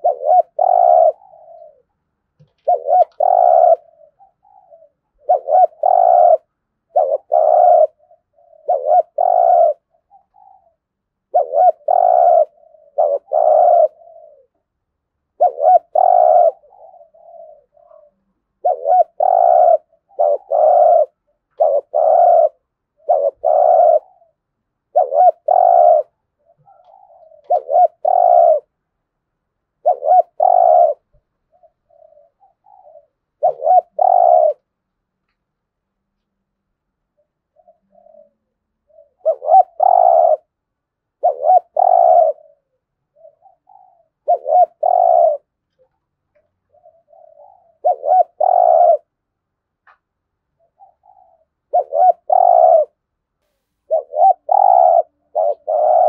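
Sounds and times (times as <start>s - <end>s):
dove cooing: 0.0s - 28.8s, 29.7s - 34.8s, 37.1s - 49.3s, 50.5s - 53.1s, 53.9s - 56.0s.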